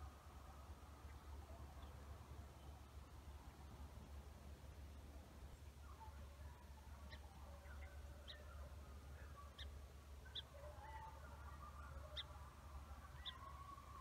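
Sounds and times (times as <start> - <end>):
distant hounds baying: 5.9 - 14.0.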